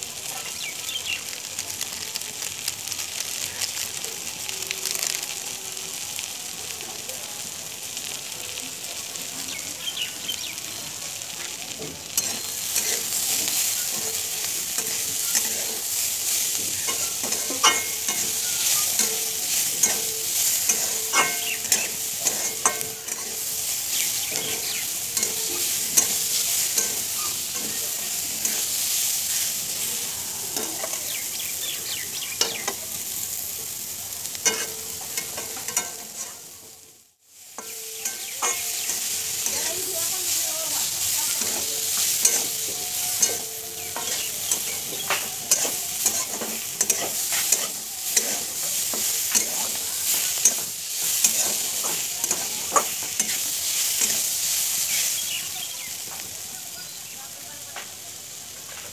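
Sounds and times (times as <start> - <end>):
vegetables sizzling in pan: 0.0 - 58.9
metal spatula scraping pan: 12.1 - 29.9, 34.4 - 36.5, 37.6 - 54.7.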